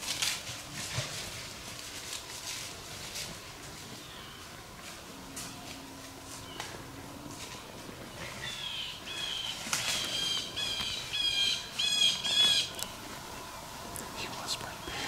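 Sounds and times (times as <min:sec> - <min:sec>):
wild bird calling: 0:03.9 - 0:15.0.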